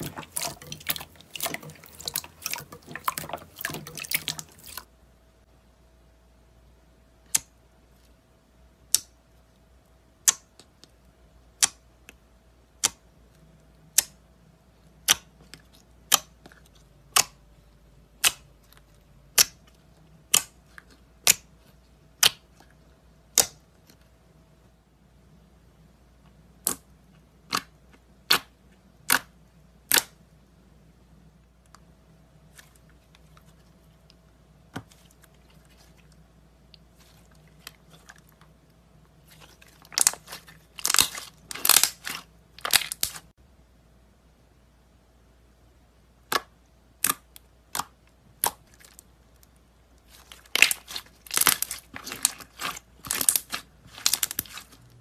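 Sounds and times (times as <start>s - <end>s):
slime popping: 0.0s - 4.8s, 39.2s - 43.3s, 50.1s - 54.8s
wet crackling of squished slime: 0.0s - 4.9s, 14.9s - 24.0s, 26.6s - 30.2s, 32.4s - 43.3s, 46.2s - 55.0s.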